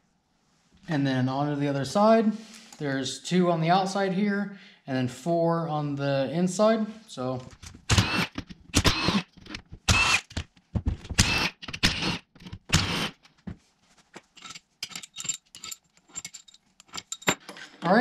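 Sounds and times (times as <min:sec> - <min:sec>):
cordless power tool running: 0:07.9 - 0:09.2, 0:09.9 - 0:10.4, 0:11.2 - 0:13.1.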